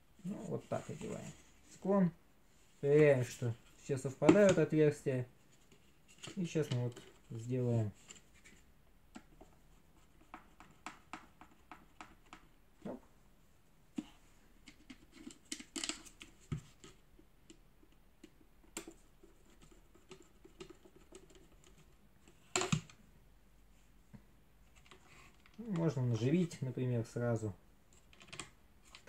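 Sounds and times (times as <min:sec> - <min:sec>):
plastic parts clicking and scraping: 0:14.6 - 0:17.0, 0:27.9 - 0:29.0.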